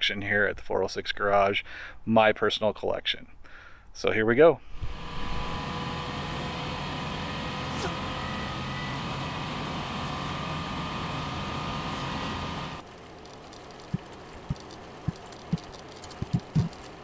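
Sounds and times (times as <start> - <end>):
vehicle cabin road noise: 5.3 - 17.0
tyres on gravel road: 5.5 - 17.0.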